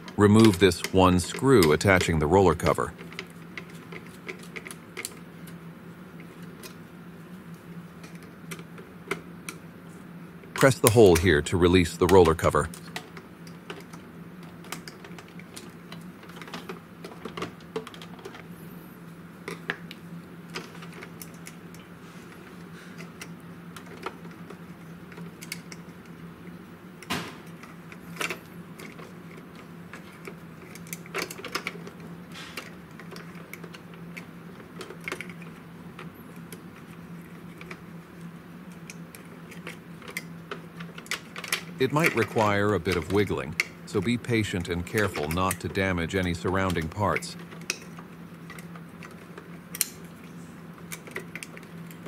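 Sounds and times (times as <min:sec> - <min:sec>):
steady low hum: 0:00.0 - 0:52.0
plastic parts clicking and tapping: 0:27.0 - 0:32.0, 0:38.7 - 0:50.1.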